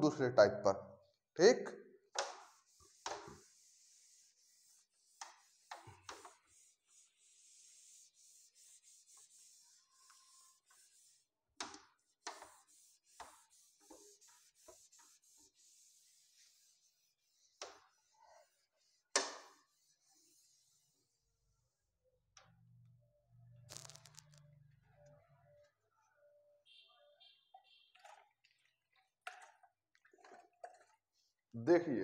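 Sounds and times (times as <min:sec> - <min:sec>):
duster rubbing on whiteboard: 0:02.2 - 0:21.4.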